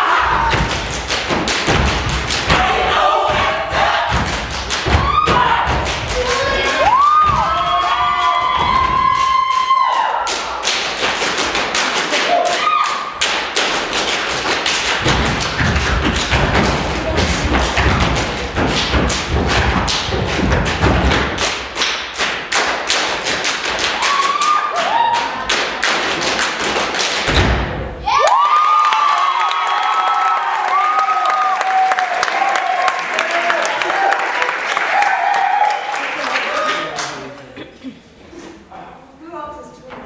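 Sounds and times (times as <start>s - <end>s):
crowd shouting and whooping: 0.0s - 0.7s, 4.9s - 10.7s, 12.1s - 13.2s, 23.9s - 25.5s, 28.0s - 36.9s
feet stamping and clapping: 0.3s - 2.7s, 4.1s - 27.7s.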